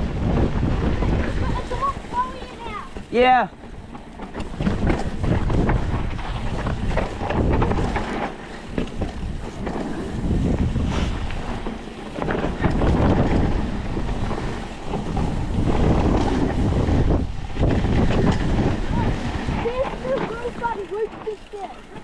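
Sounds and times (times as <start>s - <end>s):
bike rattles and clicks: 0.0s - 22.0s
tyre noise on dirt: 0.0s - 22.0s
wind buffeting microphone: 0.0s - 22.0s.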